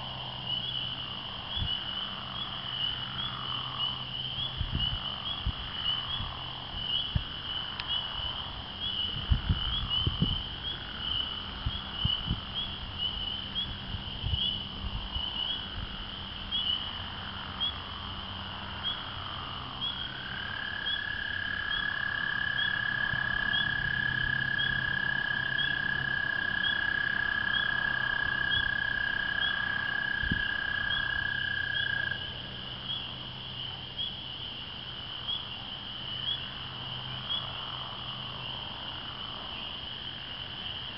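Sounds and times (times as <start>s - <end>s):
frogs peeping chorus: 0.0s - 40.9s
toad trilling: 18.8s - 33.1s.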